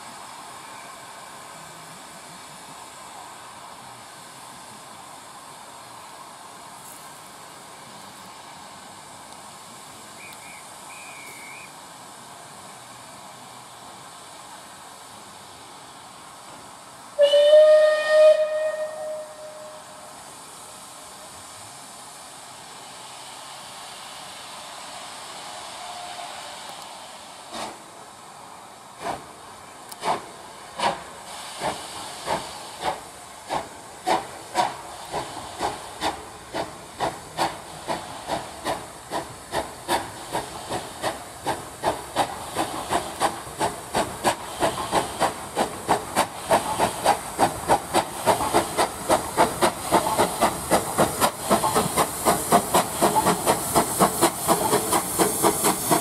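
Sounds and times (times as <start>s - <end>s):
steam hissing: 0.0s - 56.0s
steam locomotive exhaust chuffs: 28.9s - 56.0s.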